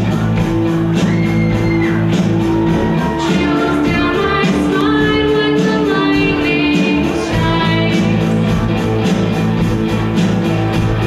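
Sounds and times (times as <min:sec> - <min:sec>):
live rock band playing: 0:00.0 - 0:11.0
girls singing: 0:02.8 - 0:08.4.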